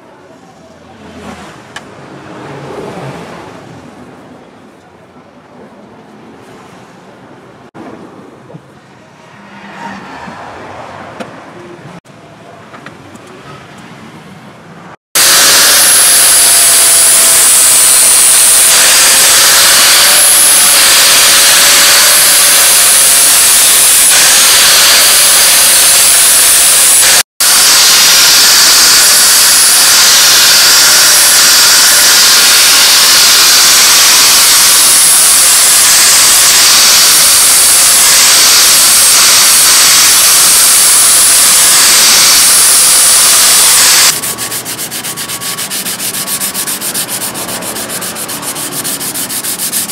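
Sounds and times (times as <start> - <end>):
angle grinder grinding steel: 15.2 - 49.9.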